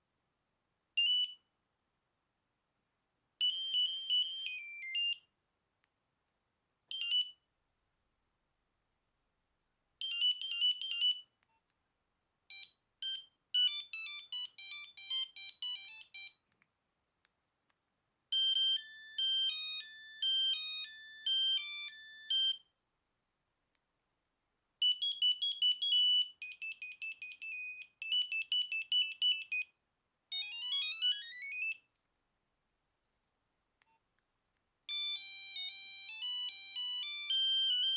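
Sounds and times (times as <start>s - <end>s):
beeping phone ringtones: 12.5s - 16.4s, 18.4s - 22.6s, 34.9s - 37.9s.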